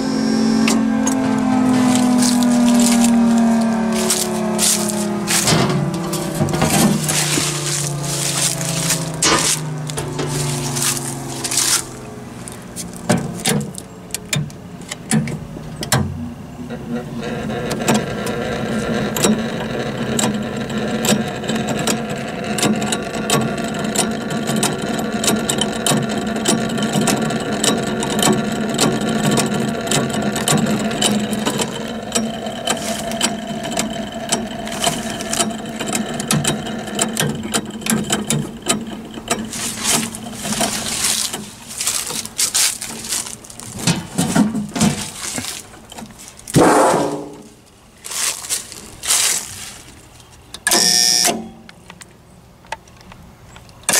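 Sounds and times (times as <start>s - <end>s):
falling whine: 0.0s - 14.0s
steady electrical hum: 0.0s - 26.4s, 27.3s - 52.5s
relays clicking: 17.2s - 46.6s.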